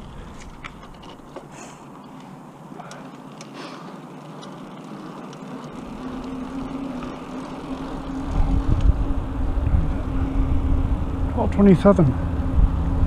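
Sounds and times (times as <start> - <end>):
bicycle tyres humming on asphalt: 0.0 - 13.0
wind rumbling on microphone: 5.8 - 13.0.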